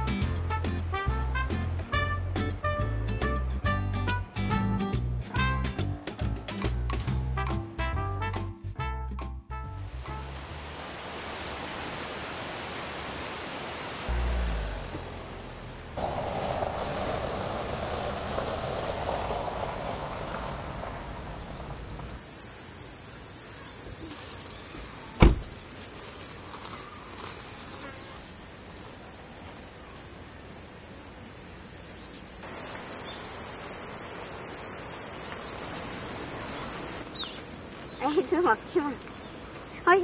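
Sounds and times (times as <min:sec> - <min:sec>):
vehicle passing on road: 0:09.8 - 0:22.2
high-pitched insect chorus: 0:16.0 - 0:40.0
sharp knock: 0:25.2 - 0:25.5.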